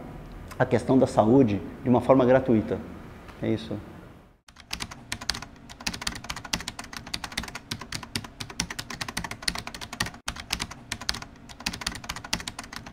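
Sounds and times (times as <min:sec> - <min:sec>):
fast keyboard key clicks: 0:04.5 - 0:12.9.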